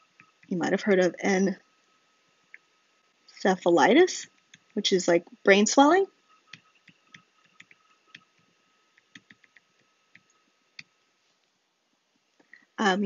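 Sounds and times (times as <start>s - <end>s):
faint high whine: 0.0s - 13.0s
stylus tapping on tablet: 6.5s - 10.9s.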